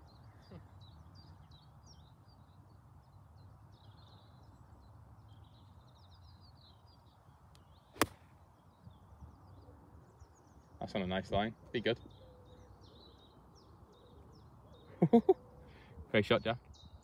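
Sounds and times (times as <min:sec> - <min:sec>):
faint birdsong: 0:00.0 - 0:17.0
golf club striking ball: 0:08.0 - 0:08.2.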